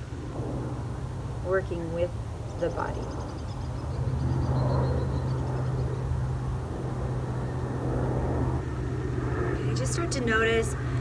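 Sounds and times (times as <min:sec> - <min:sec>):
low engine hum: 0:00.0 - 0:11.0
faint high chirping: 0:02.4 - 0:06.4.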